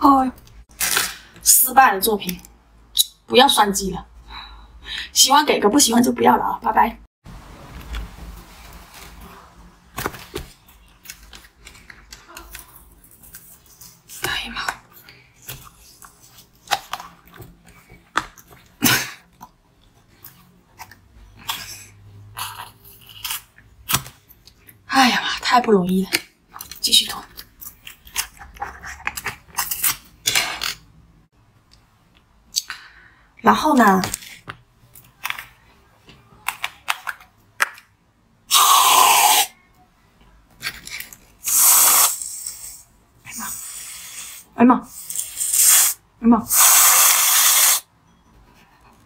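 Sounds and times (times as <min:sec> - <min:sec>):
aerosol can hissing: 0:41.4 - 0:42.8, 0:45.1 - 0:47.8.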